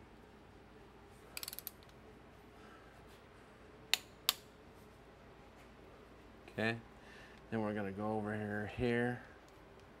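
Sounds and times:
ratchet clicks rattling: 1.4s - 1.9s
torque wrench clicks: 1.4s - 1.9s.

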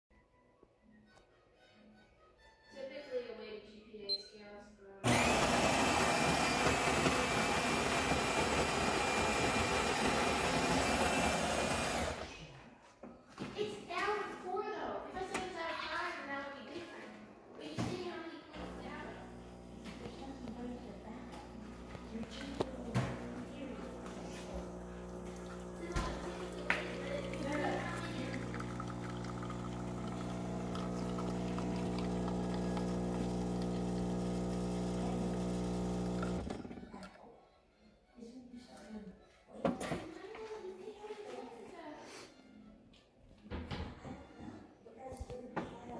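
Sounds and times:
espresso machine pump humming: 5.0s - 12.2s, 18.6s - 36.8s
coffee grinder whirring: 5.0s - 12.3s, 18.6s - 36.8s.

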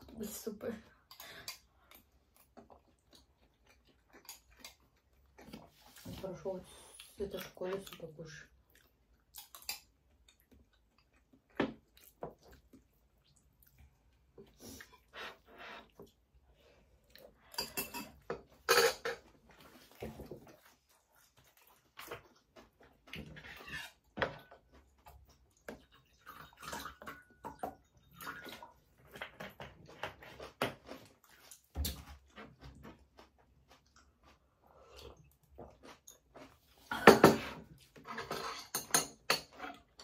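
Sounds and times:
wet eating sounds: 0.2s - 40.0s
cutlery clinking on plates: 17.6s - 19.2s, 36.9s - 39.9s.

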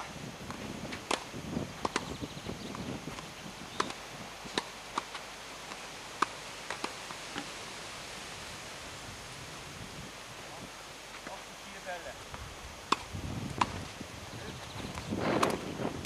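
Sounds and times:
tennis ball bouncing on clay: 0.4s - 7.5s, 12.9s - 13.9s
racket hitting tennis ball: 0.9s - 2.1s, 3.1s - 7.5s, 12.9s - 13.8s.

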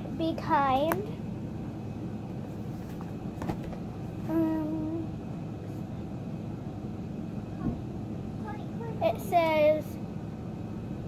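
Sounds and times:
low background rumble: 0.0s - 11.0s
hummed voice: 4.2s - 5.2s.

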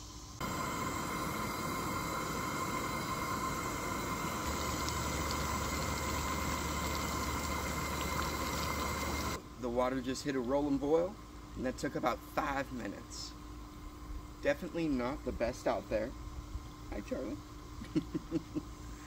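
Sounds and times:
water boiling in pot: 0.0s - 18.9s
steady tone: 0.4s - 9.4s.

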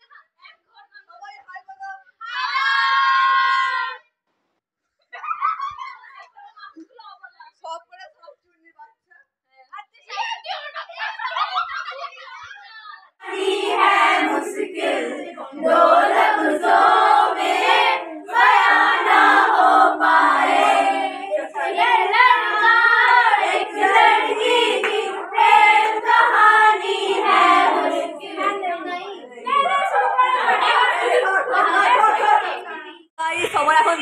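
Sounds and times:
women singing in chorus: 13.2s - 28.6s, 29.3s - 32.7s.

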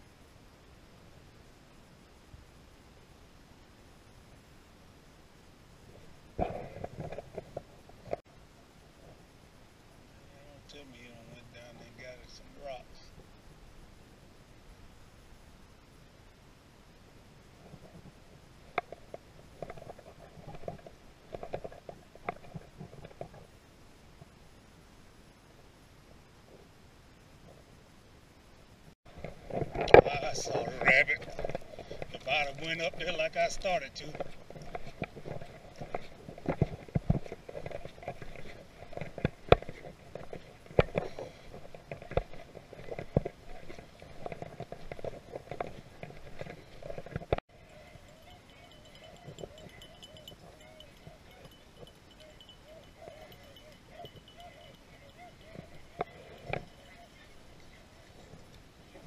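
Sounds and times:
footsteps on rough ground: 29.1s - 59.0s
rustling: 29.1s - 59.0s
dogs barking and yelping: 47.6s - 58.3s.

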